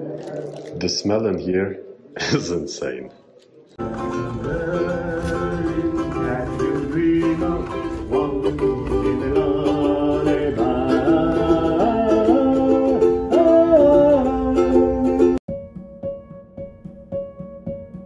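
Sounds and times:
ukulele melody: 0:03.8 - 0:15.4.

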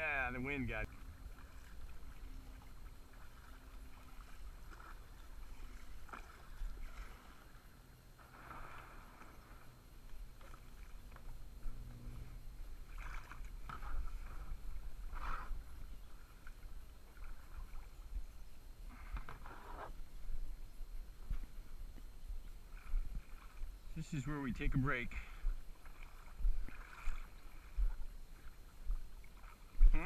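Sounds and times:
water splashing around kayak: 0:00.0 - 0:30.0.

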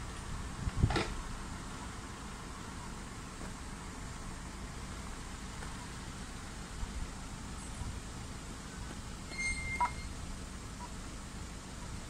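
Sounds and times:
low outdoor rumble: 0:00.0 - 0:12.0
high-pitched squeal: 0:09.3 - 0:10.2.

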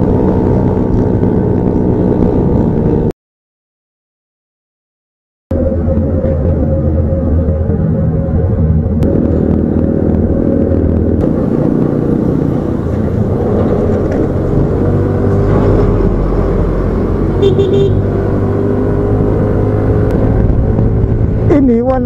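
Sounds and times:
short horn beeps: 0:17.4 - 0:18.0.

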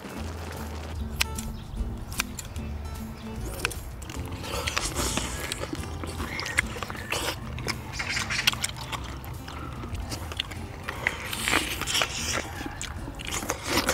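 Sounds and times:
chewing and lip smacking: 0:01.1 - 0:13.9
slurp from a shell: 0:03.6 - 0:13.9.

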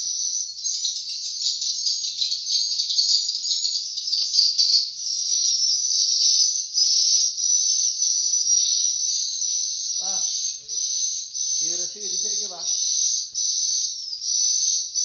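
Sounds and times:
swiftlets twittering: 0:08.5 - 0:15.0.

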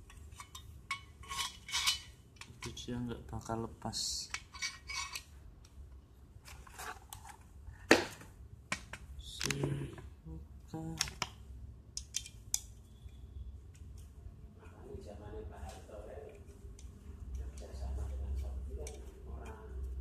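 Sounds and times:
metal parts clinking and scraping: 0:00.0 - 0:02.8, 0:04.2 - 0:05.4.

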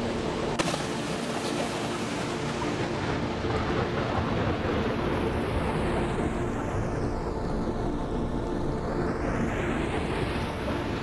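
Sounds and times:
river water rushing: 0:00.0 - 0:06.6.

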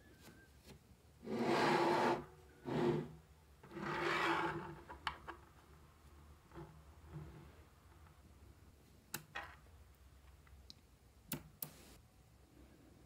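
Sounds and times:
sharp clicks: 0:10.7 - 0:11.8.

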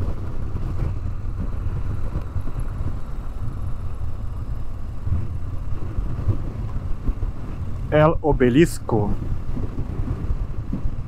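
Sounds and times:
motorcycle engine running: 0:00.0 - 0:11.0
wind buffeting microphone: 0:00.0 - 0:11.0.

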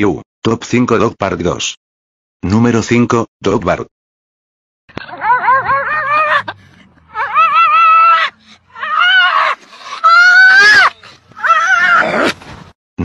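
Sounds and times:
dog yowling and yipping: 0:05.0 - 0:12.4.

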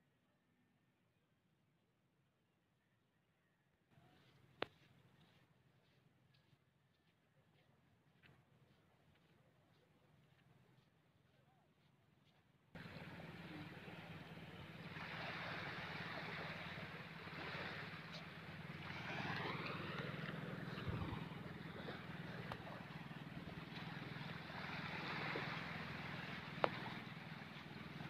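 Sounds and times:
low motor drone: 0:12.8 - 0:28.0.

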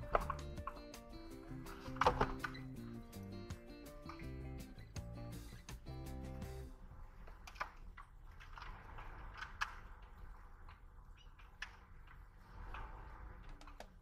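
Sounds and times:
background music: 0:00.0 - 0:06.8
faint clicks and knocks: 0:07.2 - 0:14.0.

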